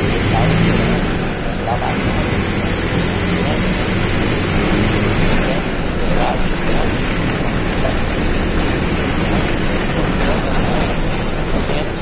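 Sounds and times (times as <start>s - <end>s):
bus engine rumble: 0.0s - 12.0s
road noise: 0.0s - 12.0s.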